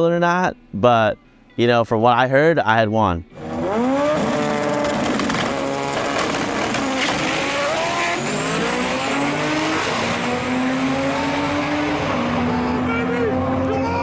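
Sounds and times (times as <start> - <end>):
engine crackles: 3.3 - 10.5
drag cars accelerating: 3.3 - 14.0.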